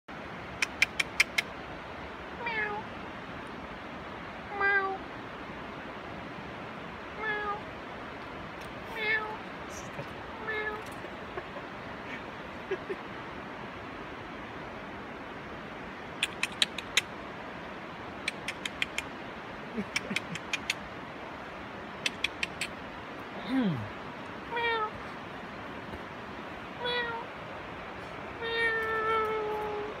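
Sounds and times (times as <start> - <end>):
cat meowing: 2.4 - 2.8, 4.5 - 5.0, 7.2 - 7.6, 8.9 - 9.4, 10.4 - 11.0, 24.5 - 25.0, 26.8 - 27.3, 28.4 - 30.0
quick sharp clicks: 16.2 - 17.1, 18.2 - 19.1, 22.0 - 22.8
person imitating cat meows: 28.4 - 30.0.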